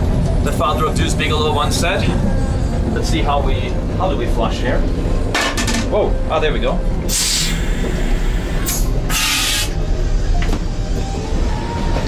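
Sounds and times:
train rumble: 0:00.0 - 0:12.0.

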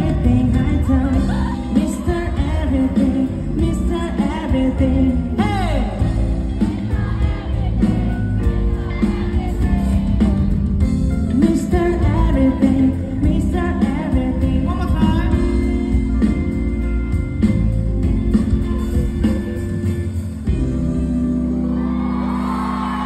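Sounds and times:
man singing into microphone: 0:00.0 - 0:06.3, 0:11.3 - 0:15.8
band playing through pa: 0:00.0 - 0:23.0.

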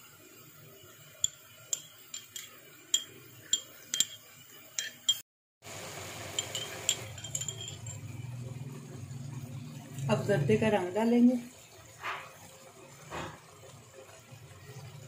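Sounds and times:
spoon clinking against glass bowl: 0:01.2 - 0:05.2, 0:06.3 - 0:08.2.

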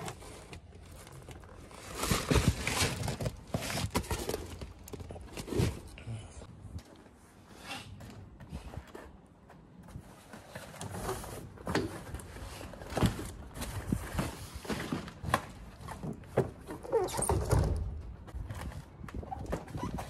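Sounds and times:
cardboard scraping and rustling: 0:00.0 - 0:06.0.

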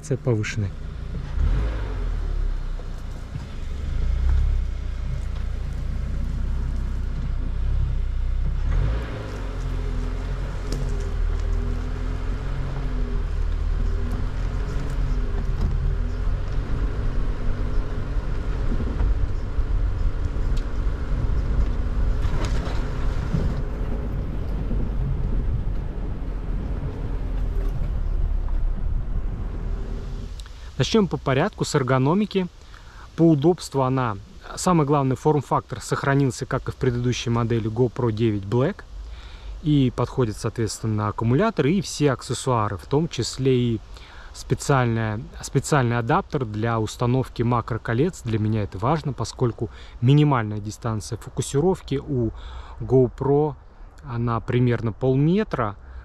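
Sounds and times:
low road rumble: 0:00.0 - 0:56.0.

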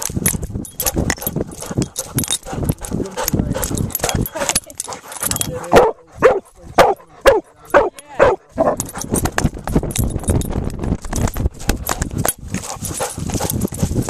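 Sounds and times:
camera jostling thumps and rustling: 0:00.0 - 0:06.0, 0:08.5 - 0:14.0
dog barking: 0:05.6 - 0:08.9.

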